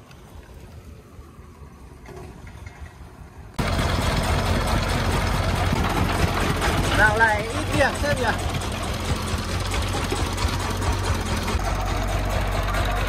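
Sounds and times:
diesel engine throbbing: 3.6 - 13.0.

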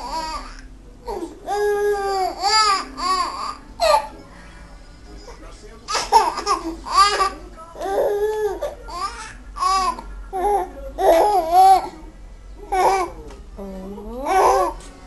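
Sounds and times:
baby babbling and giggling: 0.0 - 4.1, 5.9 - 11.9, 12.7 - 13.2, 14.2 - 14.8.

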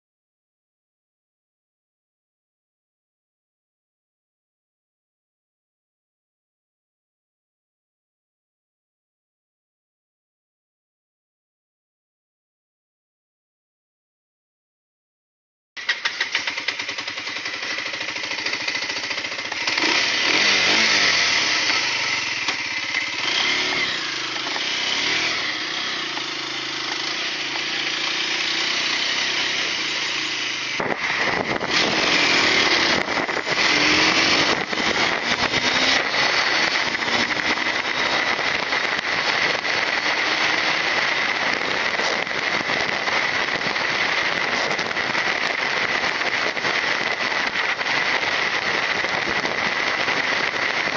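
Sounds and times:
motorcycle engine accelerating: 15.8 - 50.9
wind and road rush: 15.8 - 50.9.

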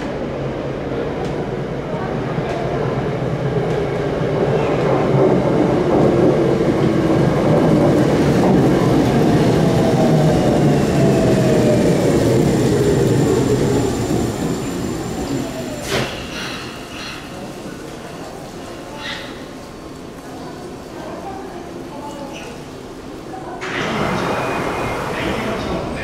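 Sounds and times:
train braking and rolling: 3.2 - 20.1, 22.3 - 26.0.

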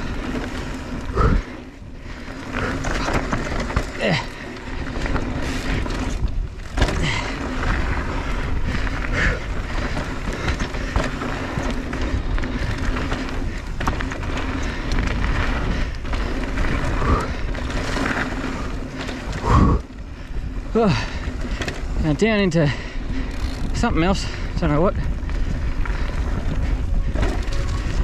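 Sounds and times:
bike rattling clicks: 0.0 - 28.0
tyre noise: 0.0 - 28.0
wind on microphone: 24.9 - 28.0.

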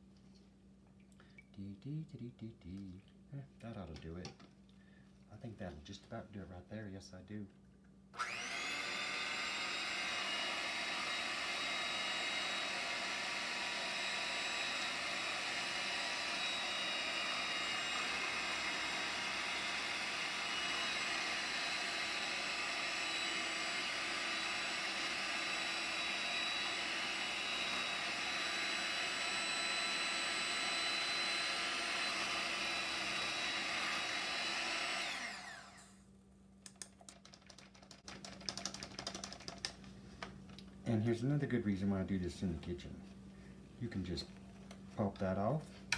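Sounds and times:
hand mixer motor whine: 8.2 - 36.0.

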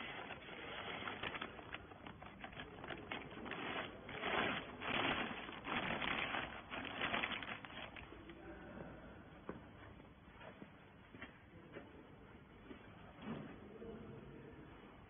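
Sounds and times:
plastic bag crinkling: 0.0 - 8.2.

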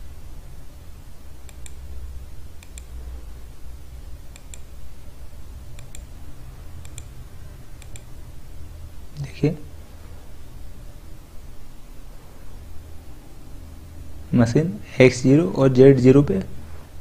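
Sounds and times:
steady low hum: 0.0 - 17.0
computer mouse clicks: 1.4 - 1.8, 2.6 - 3.0, 4.3 - 4.7, 5.7 - 6.1, 6.8 - 7.2, 7.8 - 8.1.

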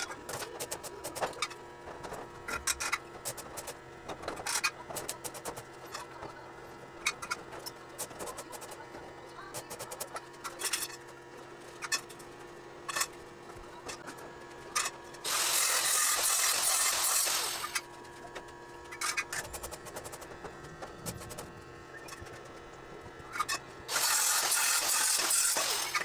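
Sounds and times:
arc welding crackling hiss: 15.2 - 17.8, 23.9 - 26.0.

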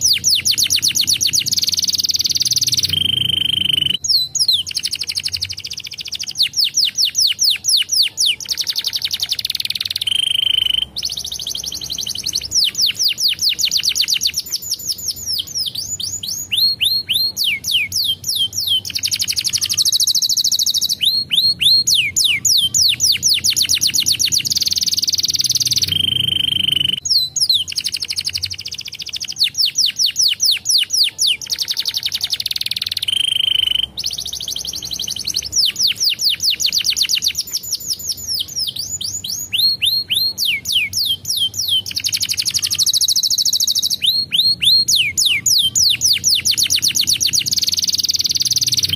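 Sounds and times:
canary singing trills: 0.0 - 48.9.

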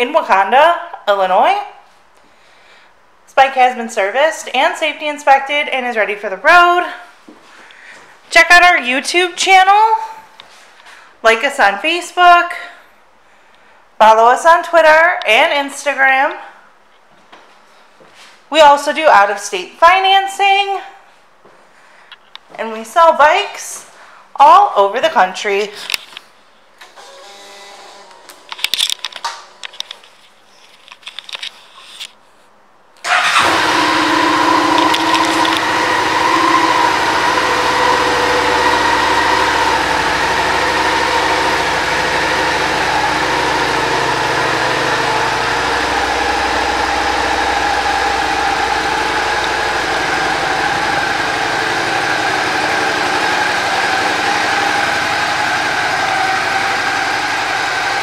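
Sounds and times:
faint clicks and handling noises: 28.3 - 32.5
motorcycle engine starting and idling: 33.0 - 58.0.

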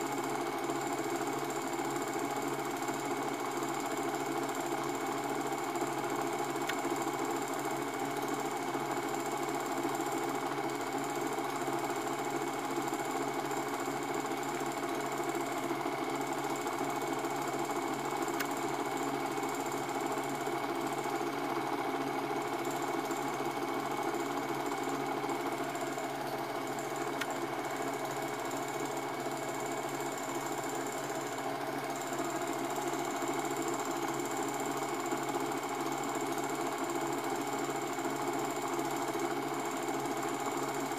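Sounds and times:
film projector running: 0.0 - 40.9.

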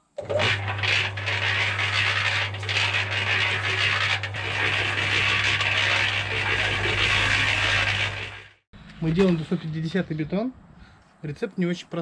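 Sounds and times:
concrete mixer motor humming: 0.0 - 9.4
mixer drum scraping and rattling: 0.0 - 10.0.

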